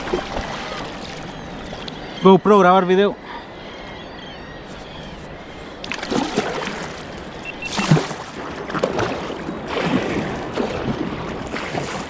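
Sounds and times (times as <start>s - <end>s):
water splashing around a kayak: 0.0s - 2.3s, 5.8s - 12.0s
short faint beeps: 7.4s - 8.0s.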